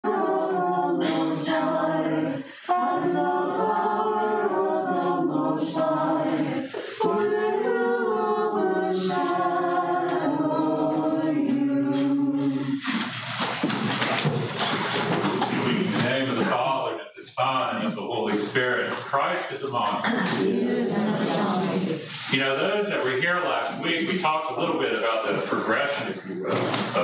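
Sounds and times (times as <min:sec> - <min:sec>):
voices singing chant a cappella: 0:00.0 - 0:13.4, 0:15.7 - 0:27.0.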